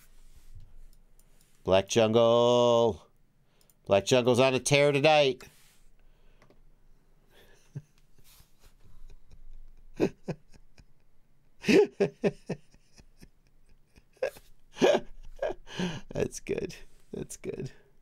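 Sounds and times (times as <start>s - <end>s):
man chuckling: 8.8s - 16.2s.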